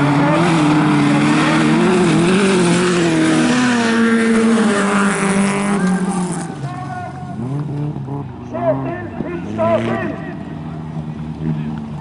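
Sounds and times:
race car engines revving: 0:00.0 - 0:12.0.

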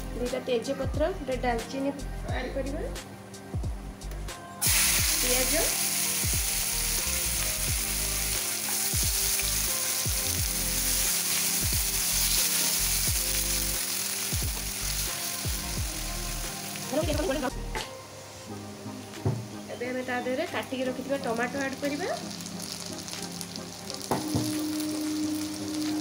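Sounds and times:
onions sizzling in hot oil: 0:04.6 - 0:17.6, 0:18.5 - 0:26.0.

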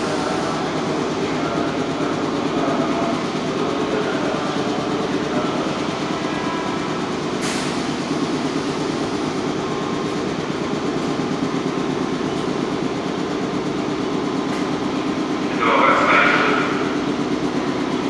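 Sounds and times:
electric train humming: 0:00.0 - 0:18.0.

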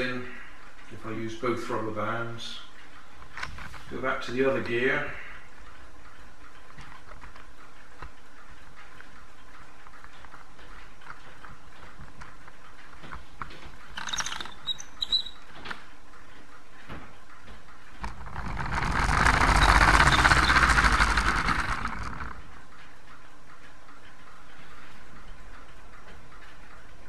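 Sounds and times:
plastic gears clicking: 0:13.8 - 0:15.8, 0:18.0 - 0:22.6
toy car gears whirring: 0:13.9 - 0:15.5, 0:18.0 - 0:22.5.

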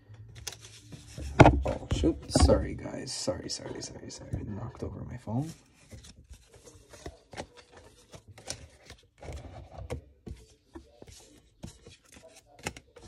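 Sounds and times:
cards and plastic packaging rustling: 0:00.2 - 0:02.8, 0:05.4 - 0:13.0.

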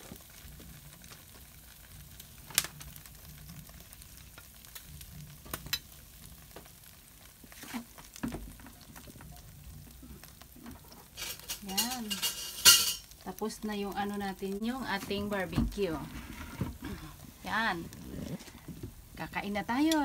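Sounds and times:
meat sizzling on grill: 0:00.0 - 0:20.0
sharp clicks and pops: 0:02.2 - 0:03.1, 0:04.3 - 0:06.8.

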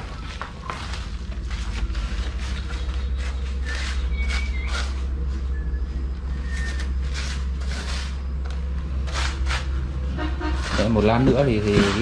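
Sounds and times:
steady low rumble: 0:00.0 - 0:12.0
mould pieces scraping and rustling: 0:00.8 - 0:05.2, 0:10.5 - 0:12.0.

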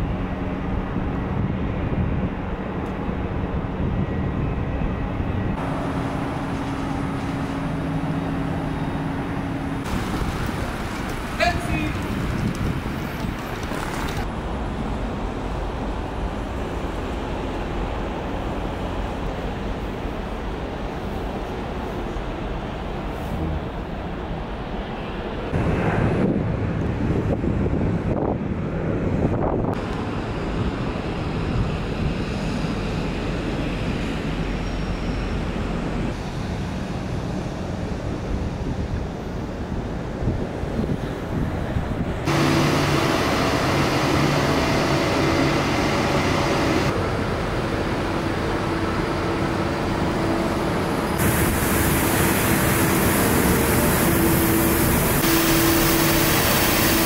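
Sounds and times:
wind buffeting microphone: 0:00.0 - 0:20.6, 0:25.5 - 0:34.6, 0:35.2 - 0:42.9
road traffic rumble: 0:00.0 - 0:57.0
traffic hiss: 0:05.6 - 0:26.0, 0:42.3 - 0:57.0.

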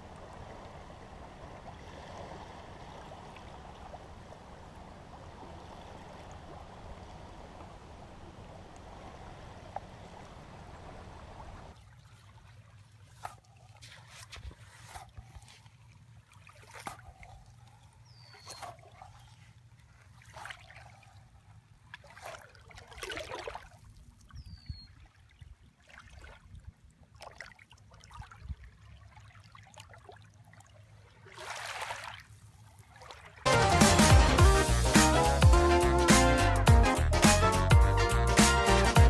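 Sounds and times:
low steady rumble: 0:00.0 - 0:11.8
small waves lapping on beach: 0:00.0 - 0:33.5.

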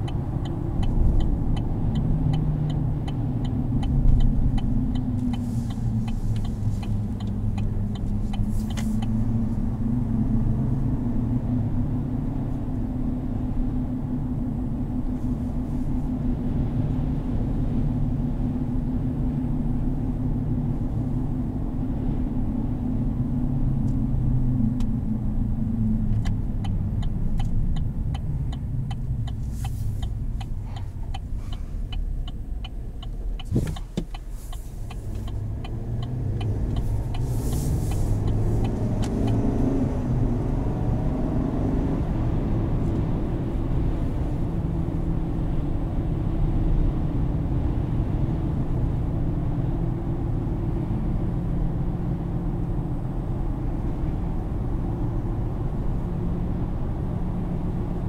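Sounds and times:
faint regular ticking: 0:00.0 - 0:09.4, 0:26.2 - 0:39.4
engine and tyre rumble: 0:00.0 - 0:58.0.

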